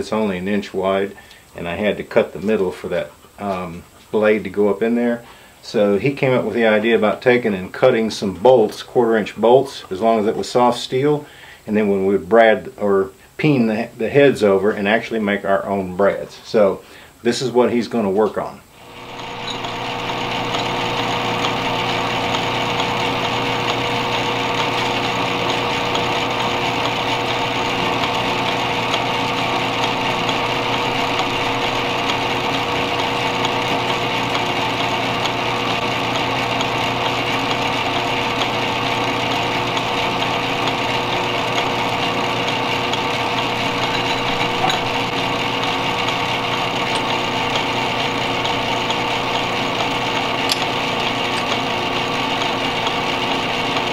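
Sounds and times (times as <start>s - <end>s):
metal lathe humming: 18.8s - 53.9s.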